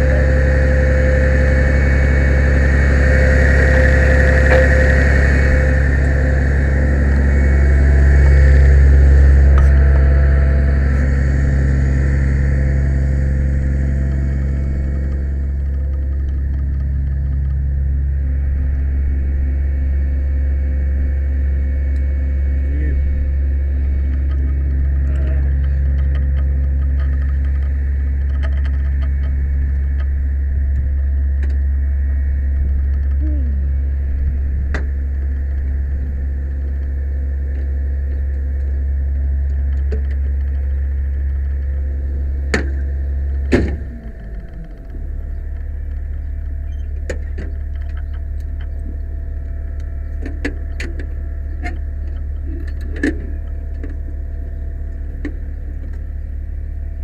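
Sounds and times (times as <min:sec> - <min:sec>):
diesel engine drone: 0:00.0 - 0:57.0.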